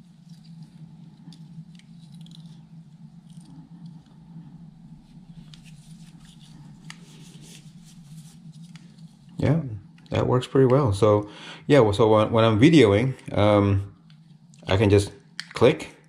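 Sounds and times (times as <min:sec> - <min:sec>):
faint rustling of handling: 0:00.0 - 0:10.2
steady low hum: 0:00.0 - 0:16.0.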